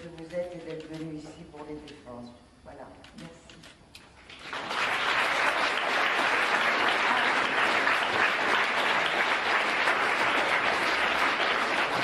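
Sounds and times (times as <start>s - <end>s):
crowd applauding: 4.3s - 12.0s.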